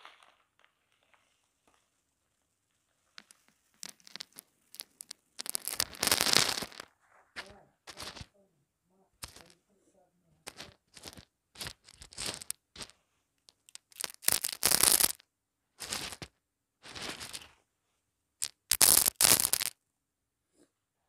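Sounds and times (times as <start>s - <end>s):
dry pieces crunching by hand: 0.0s - 1.8s, 3.2s - 8.3s, 10.5s - 12.9s, 13.5s - 15.2s, 15.8s - 17.5s, 18.4s - 19.7s.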